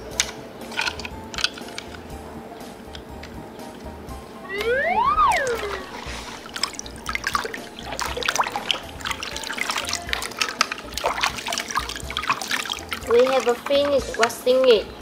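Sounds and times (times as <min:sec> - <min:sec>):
whistling tone sliding down: 0:04.4 - 0:06.5
water dripping: 0:04.6 - 0:15.0
water splashing in basin: 0:05.2 - 0:14.6.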